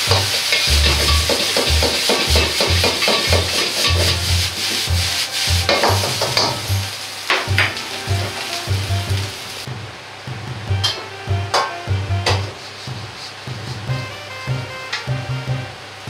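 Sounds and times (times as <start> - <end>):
metal ladle scraping wok: 0.0 - 8.7
rice sizzling in wok: 0.0 - 9.7, 12.4 - 13.8
gas flame roaring: 0.0 - 14.3.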